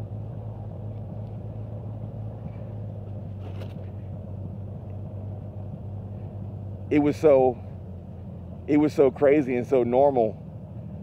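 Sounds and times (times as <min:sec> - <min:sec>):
motorcycle engine droning: 0:00.0 - 0:11.0
road and wind noise: 0:00.0 - 0:11.0.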